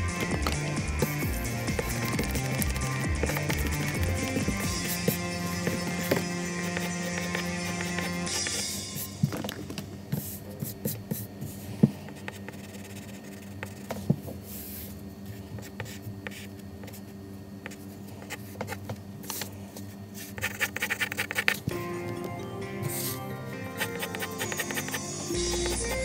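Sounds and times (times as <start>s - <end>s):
pencil scratching on paper: 1.7s - 8.6s, 12.1s - 13.9s, 20.2s - 21.6s, 23.8s - 26.0s.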